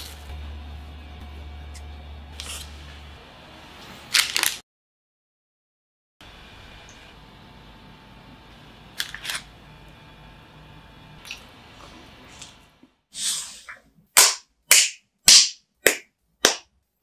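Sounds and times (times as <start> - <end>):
low hum: 0.0 - 4.1.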